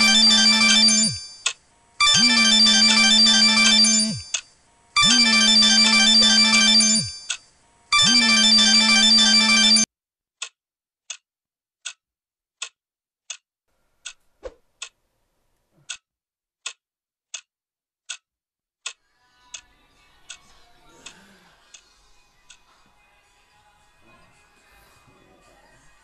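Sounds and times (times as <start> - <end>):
clock ticking: 0.0 - 4.4
smartphone ringtone: 0.0 - 4.4, 5.0 - 9.9
faint music: 19.0 - 26.0.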